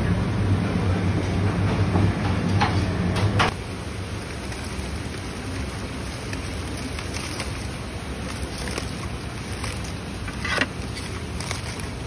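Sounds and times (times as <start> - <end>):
background rumble and hiss: 0.0 - 12.0
foil crinkling: 3.5 - 12.0.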